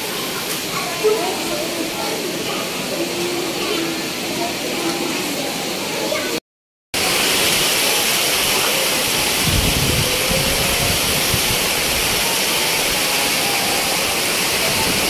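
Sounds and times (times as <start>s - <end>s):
heavy rain hiss: 7.0s - 15.0s
strong wind: 7.5s - 15.0s.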